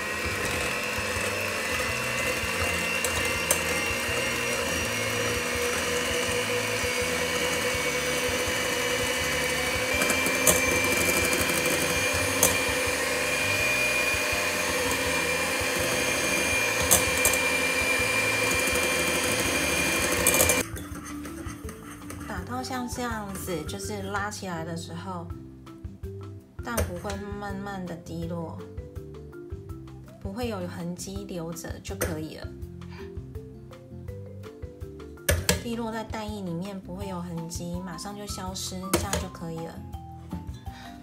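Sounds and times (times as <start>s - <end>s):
electric hand mixer running: 0.0s - 23.5s.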